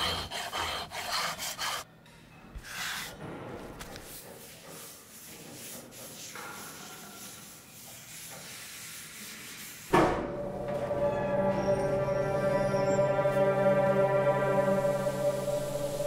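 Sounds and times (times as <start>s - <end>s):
sustained background music: 10.0s - 16.0s
soft hissing noise: 14.5s - 16.0s.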